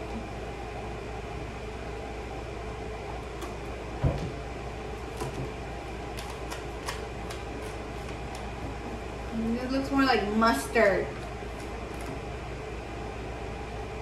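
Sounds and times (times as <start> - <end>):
room hum: 0.0 - 14.0.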